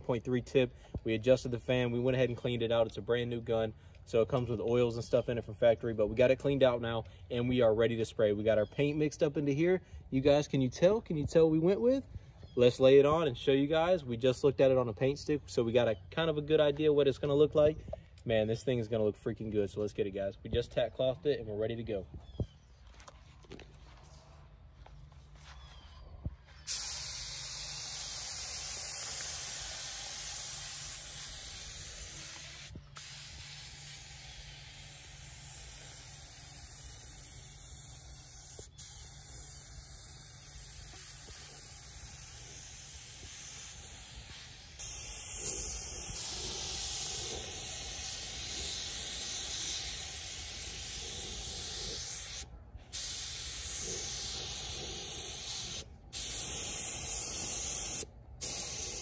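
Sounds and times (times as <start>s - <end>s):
paint spray gun hissing: 26.6s - 59.0s.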